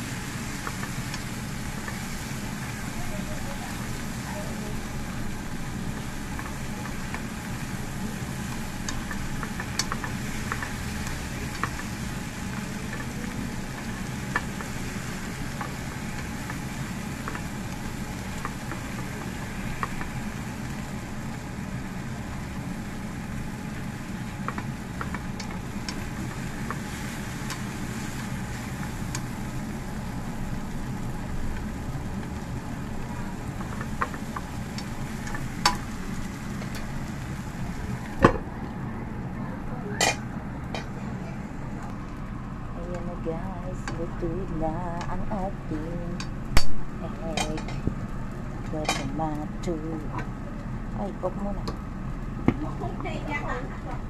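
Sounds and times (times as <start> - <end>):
food sizzling in a frying pan: 0.0 - 54.0
steady low hum: 0.0 - 54.0
chopsticks clicking against pan: 8.5 - 11.9, 12.8 - 14.7, 24.4 - 26.0.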